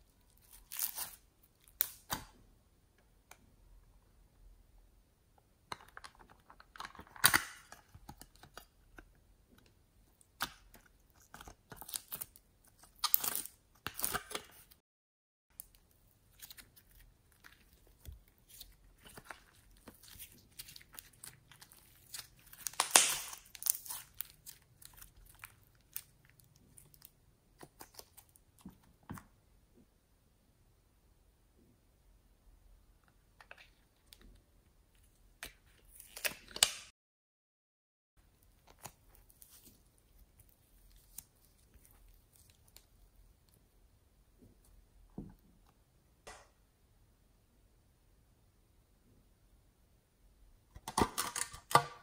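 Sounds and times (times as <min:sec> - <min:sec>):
slime crackling and popping: 0:15.6 - 0:28.3.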